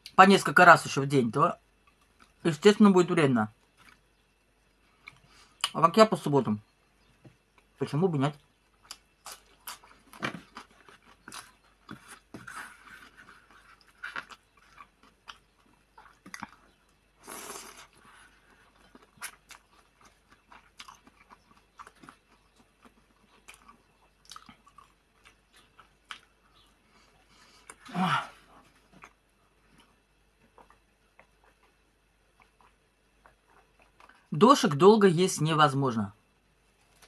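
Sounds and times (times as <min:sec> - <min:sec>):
person chewing: 0:03.6 - 0:04.2, 0:08.4 - 0:34.3.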